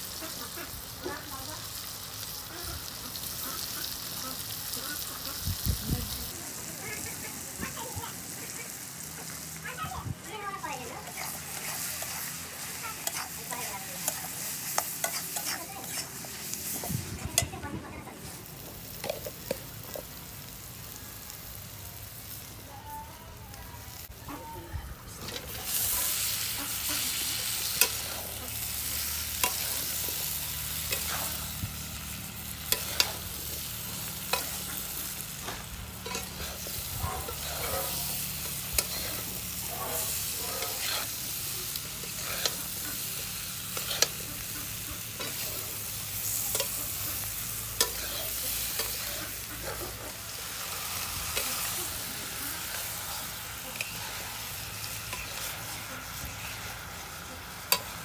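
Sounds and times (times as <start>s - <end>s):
food sizzling in hot oil: 0.0s - 58.0s
metal spatula scraping a pan: 11.1s - 17.5s, 25.2s - 31.6s, 32.2s - 41.4s, 42.0s - 57.0s.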